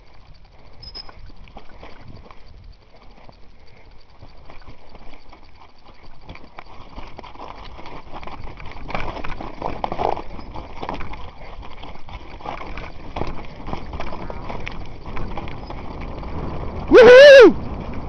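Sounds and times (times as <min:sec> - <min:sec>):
bike rattling over rocks: 0:00.0 - 0:16.9, 0:17.5 - 0:18.0
wind buffeting microphone: 0:07.0 - 0:18.0.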